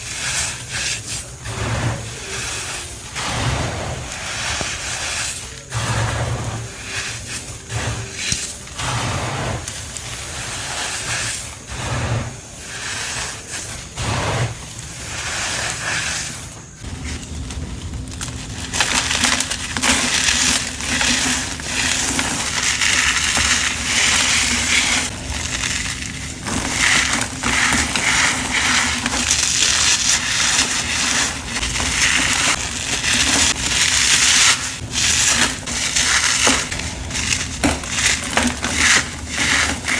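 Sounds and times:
packed powder crunching: 0.0s - 39.9s.

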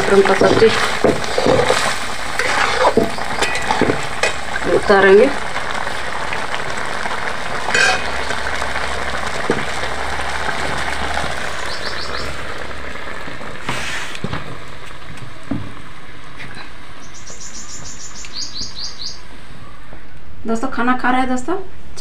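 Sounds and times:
curry sizzling in a pan: 0.0s - 17.9s
pan knocking down: 0.2s - 4.5s, 7.6s - 8.2s
birds chirping: 2.4s - 5.2s, 8.0s - 8.6s, 11.4s - 12.7s, 16.4s - 20.2s.

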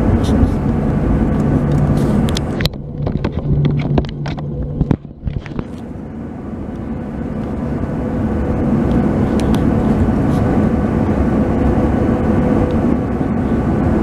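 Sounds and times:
aircraft cabin engine hum: 0.0s - 14.0s
clicks and knocks: 1.7s - 5.8s.

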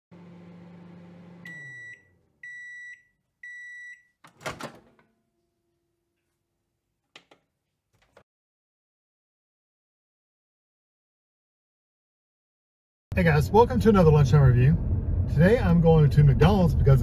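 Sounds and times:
microwave oven humming: 0.1s - 5.2s
high microwave beeps: 1.4s - 4.2s
microwave door clatter: 4.3s - 5.1s.

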